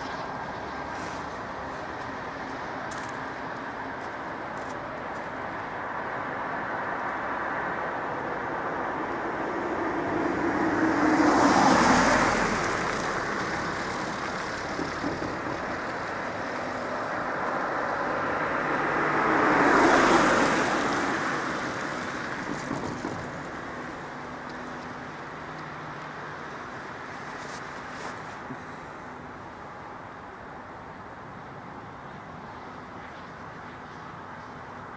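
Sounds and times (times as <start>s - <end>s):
vehicles driving past: 0.0s - 34.9s.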